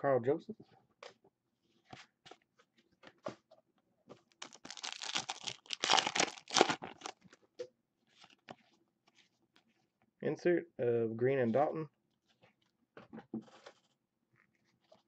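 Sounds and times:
plastic wrapper crinkling: 0:04.3 - 0:07.3.

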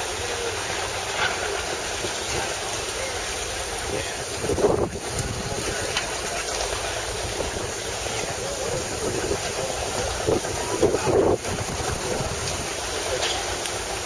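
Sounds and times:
steam engines hissing and rumbling: 0:00.0 - 0:14.0
wind buffeting microphone: 0:03.7 - 0:13.2.

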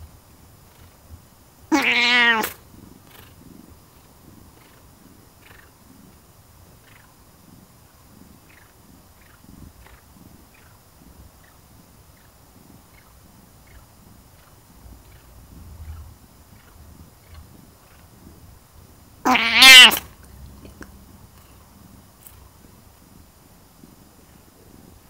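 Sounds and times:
cat purring: 0:00.0 - 0:25.0
cat meowing: 0:01.7 - 0:02.6, 0:19.3 - 0:20.1.

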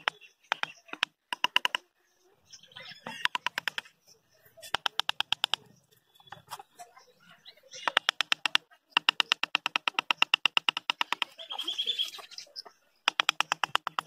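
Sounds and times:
rapid sharp taps: 0:07.9 - 0:11.4, 0:13.0 - 0:14.0.

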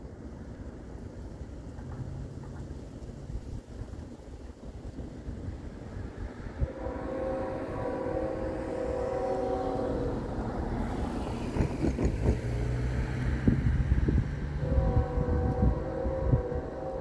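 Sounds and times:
low rumble of train engines: 0:00.0 - 0:17.0
wind gusts on microphone: 0:00.1 - 0:17.0
distant train horn chord: 0:06.3 - 0:11.3, 0:14.3 - 0:17.0.

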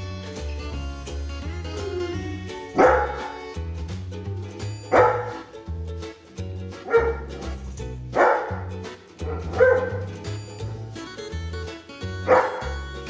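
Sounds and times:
background music: 0:00.0 - 0:13.0
dog barking: 0:02.8 - 0:03.4, 0:04.9 - 0:05.4, 0:06.9 - 0:07.2, 0:08.2 - 0:08.6, 0:09.2 - 0:10.1, 0:12.3 - 0:12.8.

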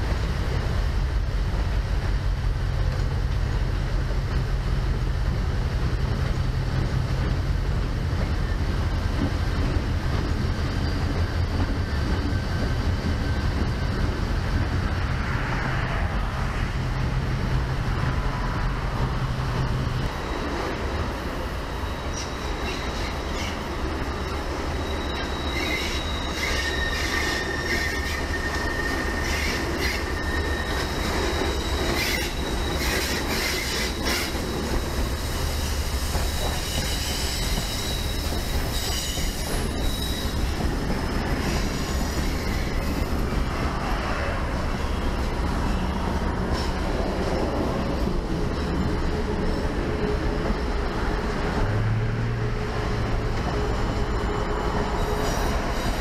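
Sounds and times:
train rumbling and clattering on rails: 0:00.0 - 0:56.0
high thin squeal: 0:21.7 - 0:40.6.

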